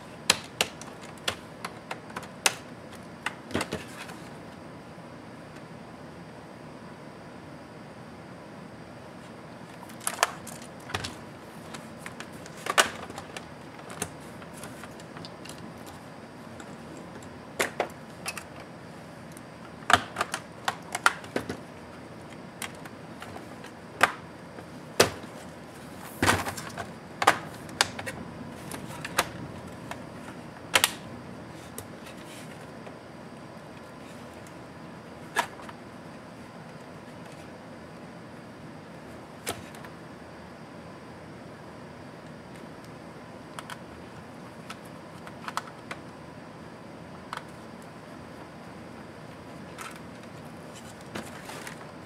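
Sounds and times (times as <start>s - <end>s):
plastic laptop parts clicking: 0.3s - 3.8s, 44.6s - 46.0s.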